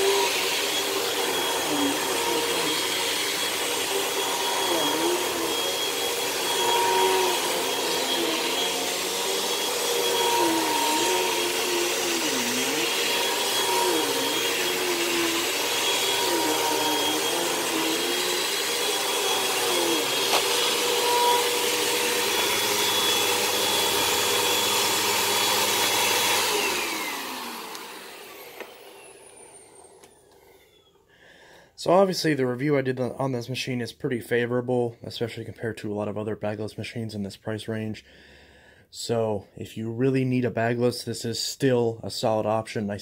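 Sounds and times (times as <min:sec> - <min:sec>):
motor winding down: 0:00.0 - 0:30.2
vacuum cleaner running on carpet: 0:00.0 - 0:30.8.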